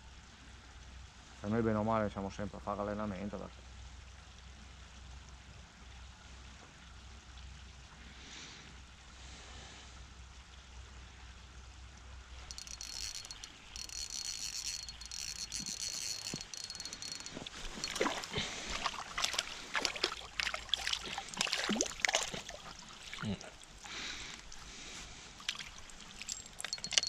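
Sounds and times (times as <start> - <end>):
fish splashing at water surface: 16.8 - 23.2.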